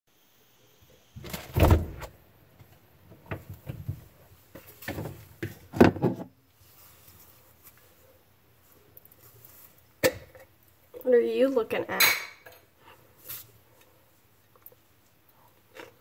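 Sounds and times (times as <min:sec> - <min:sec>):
refrigerator door thump: 0:01.2 - 0:02.1.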